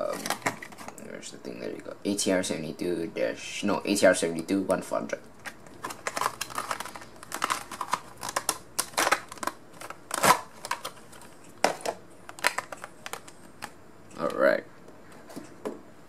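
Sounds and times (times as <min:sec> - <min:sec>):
plastic case clicks and crackles: 0:00.1 - 0:00.9, 0:05.4 - 0:14.4.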